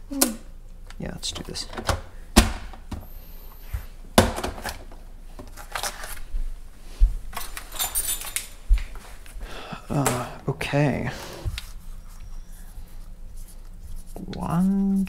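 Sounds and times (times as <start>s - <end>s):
knocks and thuds of handling: 3.8s - 5.5s.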